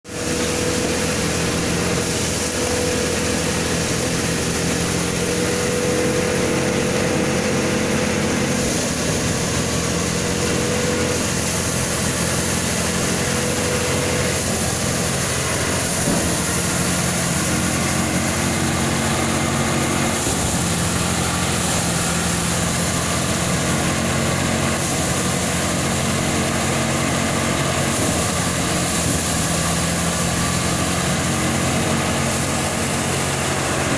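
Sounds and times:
thresher machine drone: 0.1 - 33.9.

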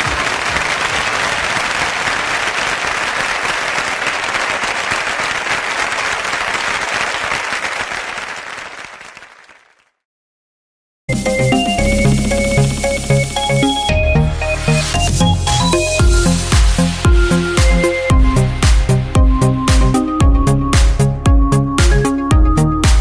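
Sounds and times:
audience applause: 0.0 - 10.0
music: 11.1 - 23.0.

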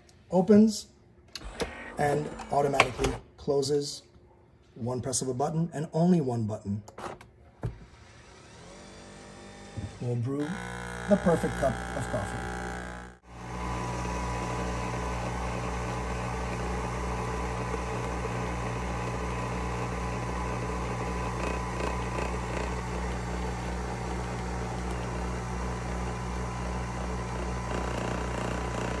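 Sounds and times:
coffee machine motor and pump hum: 8.4 - 29.0.

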